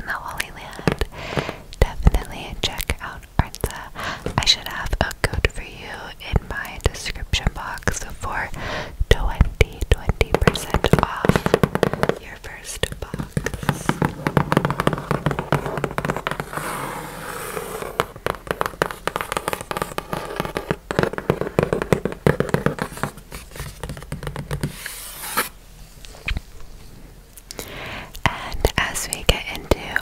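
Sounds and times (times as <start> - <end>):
fingernails tapping on cardboard: 13.0 - 16.6, 17.8 - 24.8.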